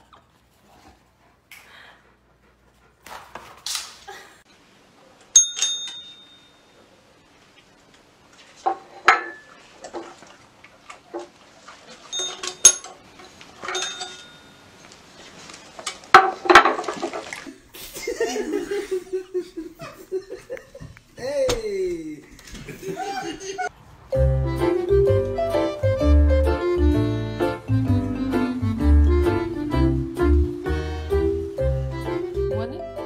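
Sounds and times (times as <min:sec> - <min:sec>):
desk service bell dings: 0:05.4 - 0:06.8, 0:13.7 - 0:14.7.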